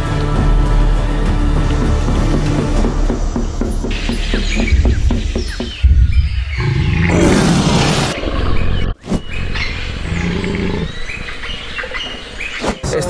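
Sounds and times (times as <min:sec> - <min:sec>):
deep rumble sound design: 0:03.0 - 0:11.2.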